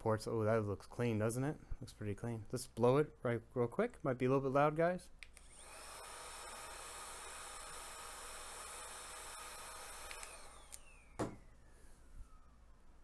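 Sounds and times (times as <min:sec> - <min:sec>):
whine falling in pitch: 0:10.6 - 0:13.0.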